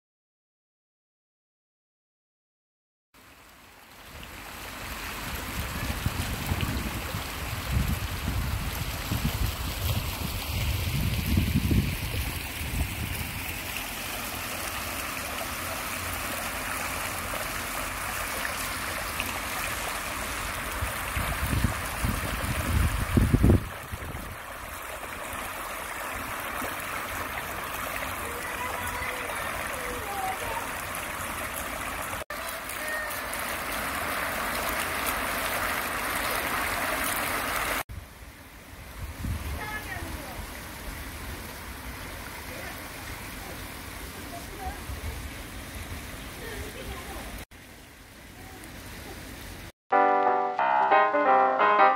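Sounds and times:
fountain water splashing into pool: 3.2 - 49.7
wind rumbling on microphone: 5.2 - 13.7, 20.6 - 24.8, 38.8 - 40.4.

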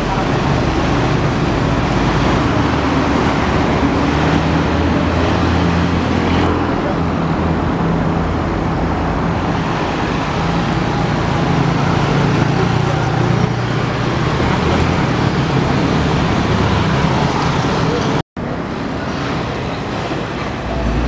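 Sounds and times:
cars and trucks passing: 0.0 - 21.0.

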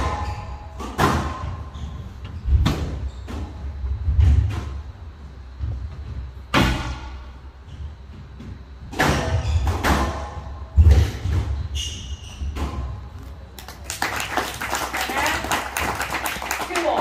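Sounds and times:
shoe squeak: 0.1 - 0.8, 1.4 - 3.6, 9.2 - 9.9, 11.4 - 13.1.

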